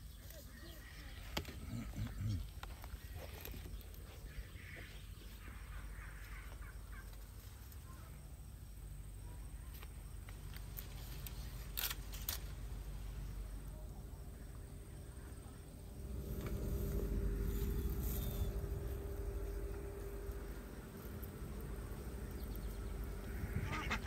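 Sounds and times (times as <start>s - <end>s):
faint bird calls: 0.0s - 8.2s, 22.2s - 24.0s
low steady rumble: 0.8s - 24.0s.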